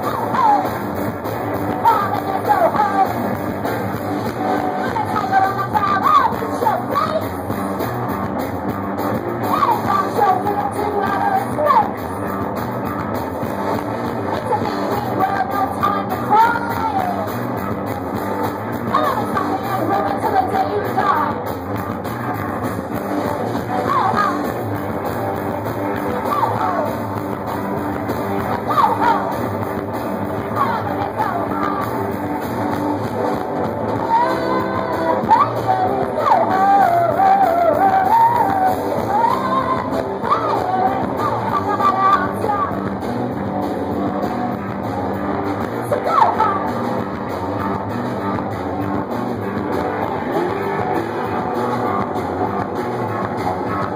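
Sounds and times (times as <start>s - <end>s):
woman singing and yelling: 0.0s - 0.8s, 1.7s - 3.3s, 4.6s - 7.6s, 9.5s - 12.1s, 14.3s - 17.4s, 18.9s - 21.4s, 23.7s - 24.6s, 26.1s - 27.0s, 28.5s - 29.5s, 30.4s - 32.0s, 34.0s - 42.9s, 45.8s - 46.8s
loud electric guitar: 0.0s - 53.9s.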